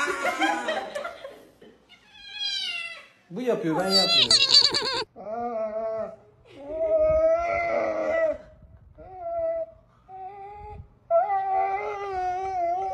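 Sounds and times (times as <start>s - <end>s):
dog whining yowls: 3.8s - 6.2s.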